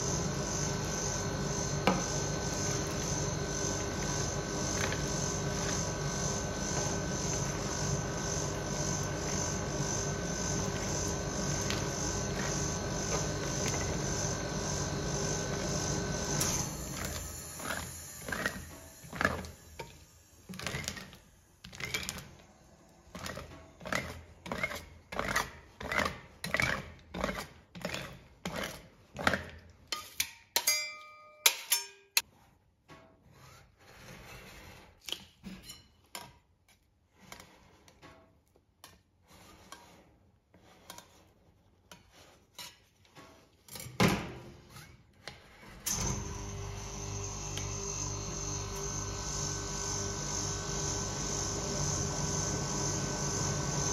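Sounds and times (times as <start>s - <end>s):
steady hum: 0.0s - 18.9s
ringing metal clinks: 30.6s - 32.1s
spatulas scraping cold plate: 39.2s - 43.8s.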